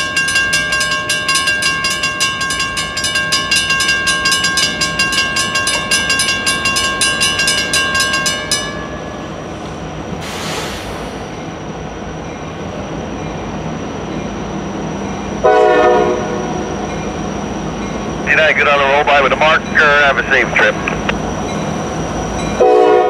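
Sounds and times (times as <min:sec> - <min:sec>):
crossing warning bells ringing: 0:00.0 - 0:10.2, 0:11.3 - 0:23.0
diesel locomotive rumble: 0:00.0 - 0:23.0
brief hiss: 0:10.2 - 0:11.5.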